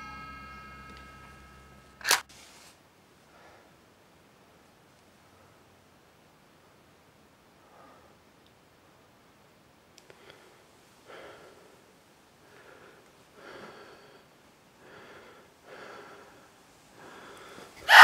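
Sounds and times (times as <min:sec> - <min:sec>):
faint clicks: 0:10.0 - 0:10.4
person breathing unsteadily: 0:10.1 - 0:18.0.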